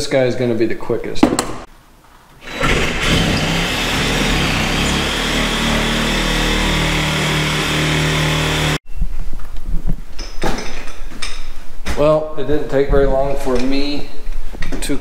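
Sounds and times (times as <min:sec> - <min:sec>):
reciprocating saw cutting drywall: 0:02.4 - 0:08.8.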